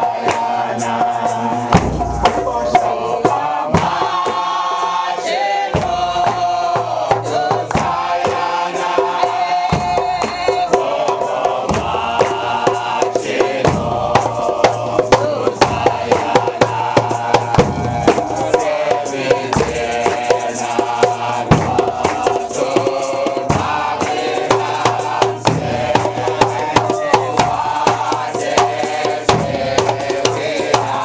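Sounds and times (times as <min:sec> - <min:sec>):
hand drums: 0:00.0 - 0:31.0
men chanting in unison: 0:00.0 - 0:31.0
bass drum beating: 0:01.6 - 0:03.0, 0:15.2 - 0:18.7.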